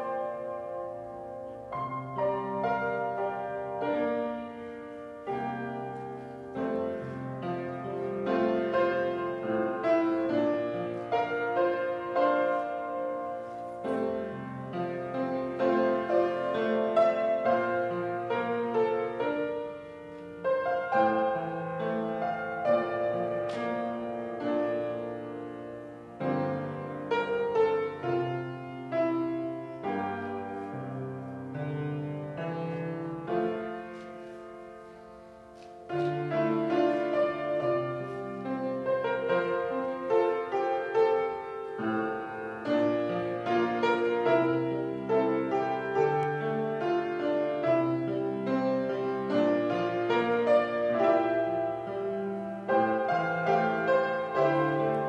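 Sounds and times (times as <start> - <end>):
slow solo piano piece: 0.0 - 55.0.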